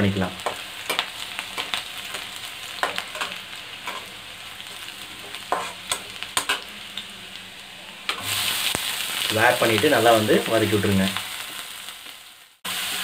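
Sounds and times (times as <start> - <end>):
garlic sizzling in hot oil: 0.0 - 13.0
metal ladle scraping pan: 0.5 - 6.7.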